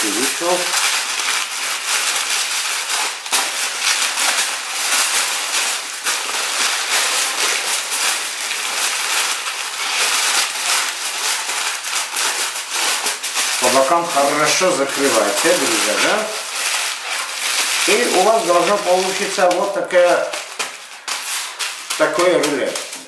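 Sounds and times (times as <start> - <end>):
foil and paper crinkling: 0.0 - 23.0.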